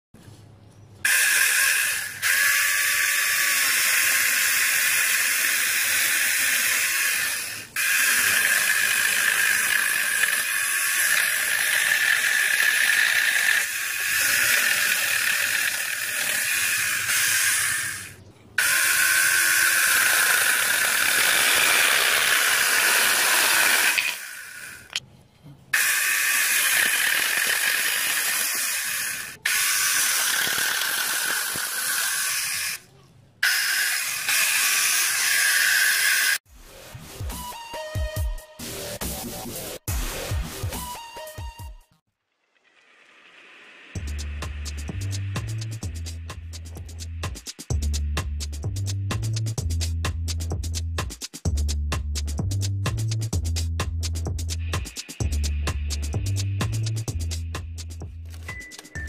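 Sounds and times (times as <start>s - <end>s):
electric chainsaw cutting wood: 1.1s - 25.0s, 25.8s - 32.8s, 33.4s - 36.5s.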